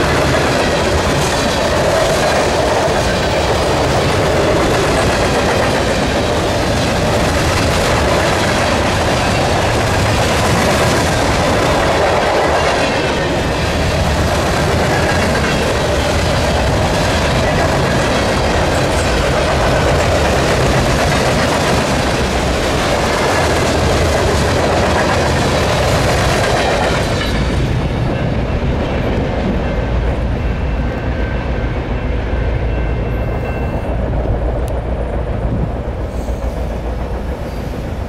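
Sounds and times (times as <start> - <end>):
low train rumble: 0.0 - 38.0
train wheels rushing on rail: 0.0 - 38.0.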